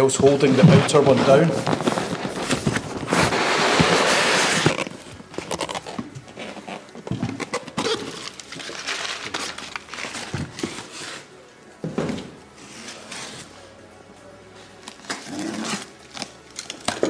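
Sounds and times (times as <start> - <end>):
quiet background music: 0.0 - 17.0
cardboard boxes scraping and rustling: 0.1 - 11.3, 12.6 - 13.6.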